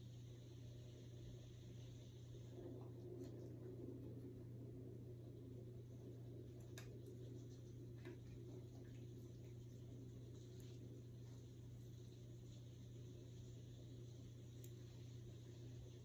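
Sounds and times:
faint soft clicks: 0:14.5 - 0:14.9.

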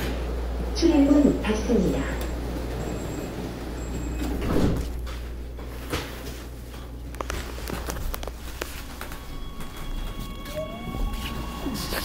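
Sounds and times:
train car hum: 0:00.0 - 0:12.0
train doors closing with a thump: 0:04.0 - 0:05.2.

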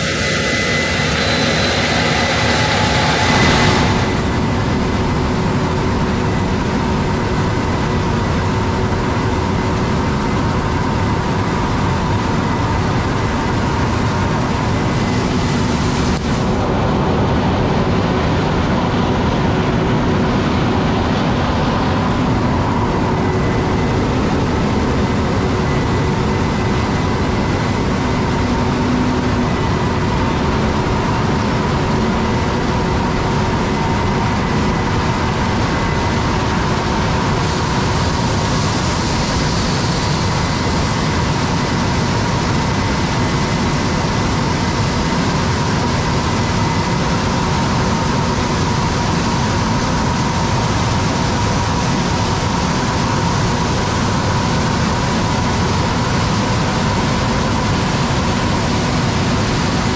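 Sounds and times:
faint steady whine: 0:00.0 - 0:59.9
machinery drone of engines: 0:00.0 - 0:59.9.

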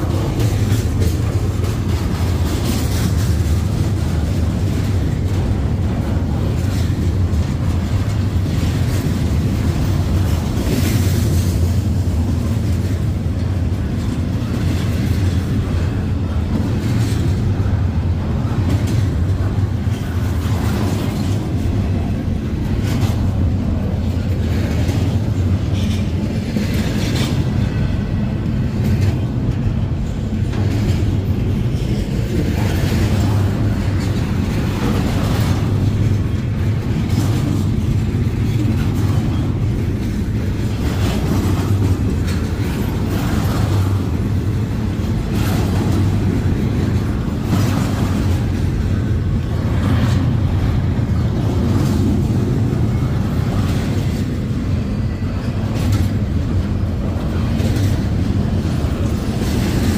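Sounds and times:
freight train wheels rumbling: 0:00.0 - 0:59.9
train cars clacking and rattling: 0:00.0 - 0:59.9.

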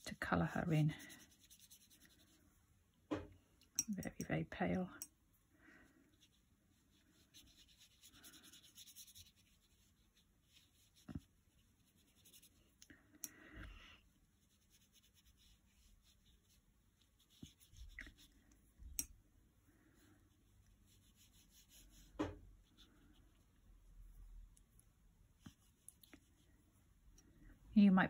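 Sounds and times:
paintbrush brushing on paper: 0:00.0 - 0:02.6, 0:05.9 - 0:12.8, 0:14.0 - 0:19.0, 0:19.6 - 0:27.0.

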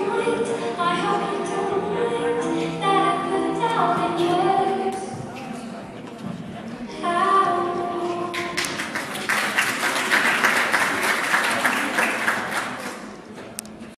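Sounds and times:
audience applauding: 0:08.3 - 0:13.2.

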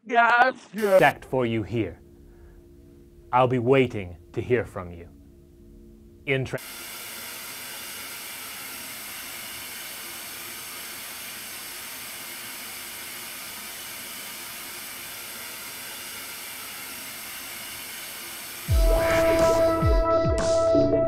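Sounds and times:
tv static hiss: 0:00.3 - 0:01.4
loud music: 0:18.7 - 0:21.0.

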